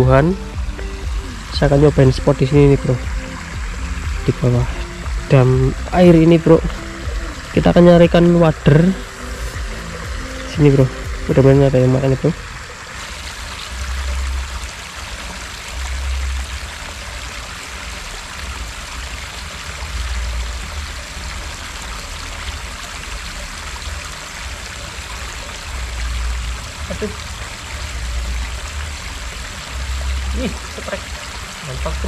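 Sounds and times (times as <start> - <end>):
low rumble: 0.0 - 16.9
water rushing over weir: 0.0 - 32.0.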